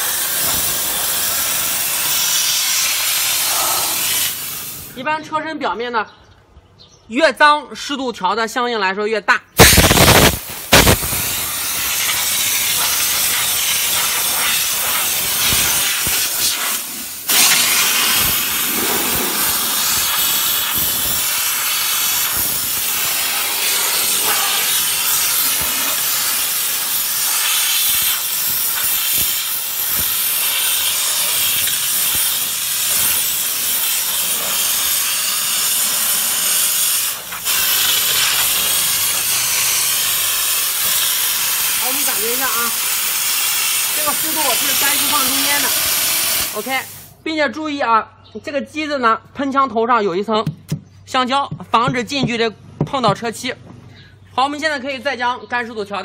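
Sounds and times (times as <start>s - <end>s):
steam gun hissing: 0.0s - 5.0s, 9.6s - 47.2s.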